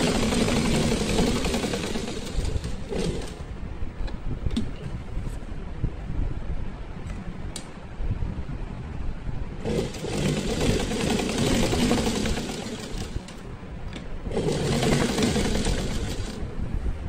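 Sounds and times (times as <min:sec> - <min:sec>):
sewing machine stitching: 0:00.0 - 0:03.4, 0:09.6 - 0:13.4, 0:14.2 - 0:16.4.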